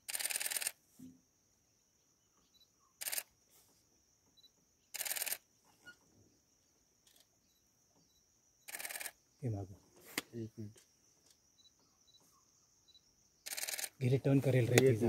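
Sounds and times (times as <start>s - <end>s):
camera shutter clicks: 0.1s - 0.8s, 3.0s - 3.3s, 5.0s - 5.4s, 8.7s - 9.2s, 13.5s - 14.0s.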